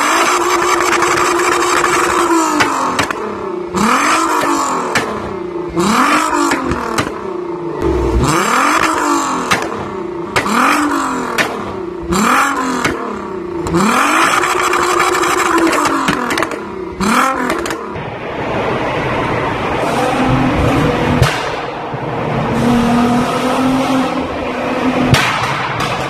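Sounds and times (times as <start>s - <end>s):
car engine revving: 0.0s - 26.0s
exhaust pops and bangs: 12.7s - 16.6s, 25.1s - 26.0s.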